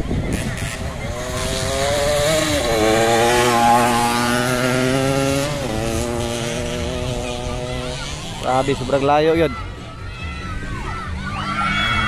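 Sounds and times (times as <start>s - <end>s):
dirt bike engine high revs: 0.2s - 9.1s.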